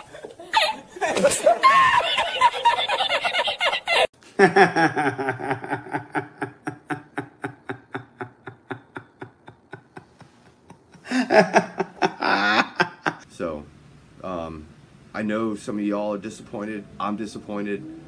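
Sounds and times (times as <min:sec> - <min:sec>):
man laughing loudly: 0:00.0 - 0:13.2.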